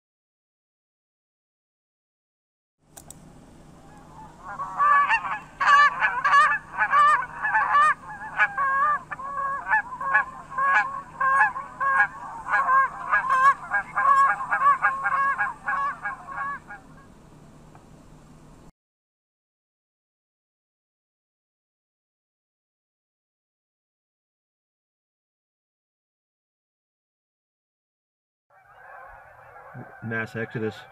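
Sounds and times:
faint steady hum: 2.8s - 18.7s, 28.6s - 30.9s
geese honking: 3.8s - 17.1s, 28.5s - 30.9s.

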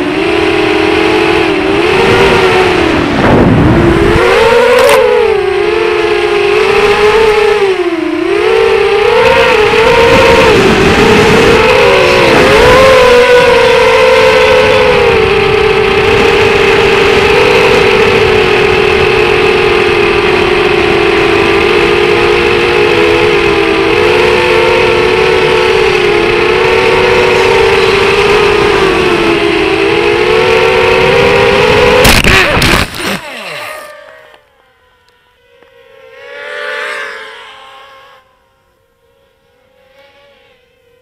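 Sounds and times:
drone motors whining: 0.0s - 41.0s
faint whir: 0.0s - 41.0s.

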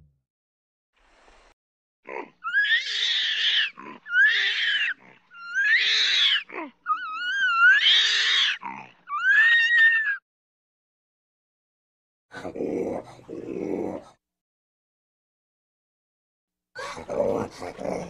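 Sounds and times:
orangutan screaming: 2.3s - 10.2s.

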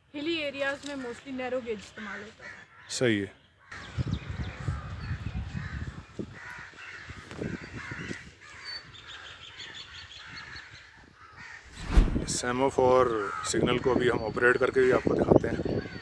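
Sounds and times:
crows cawing: 2.0s - 4.0s, 5.5s - 11.7s
low rumble on microphone: 11.7s - 12.4s.

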